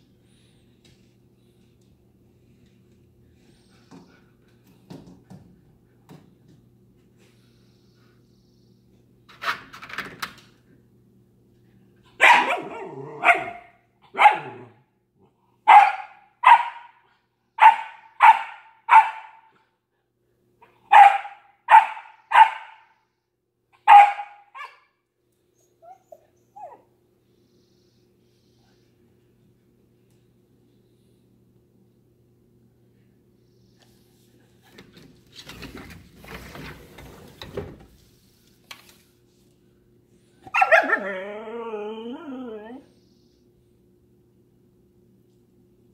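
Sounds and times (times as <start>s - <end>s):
dog barking: 12.1s - 14.8s, 15.7s - 17.0s, 17.6s - 19.6s, 20.6s - 23.0s, 23.8s - 24.9s, 40.5s - 41.0s.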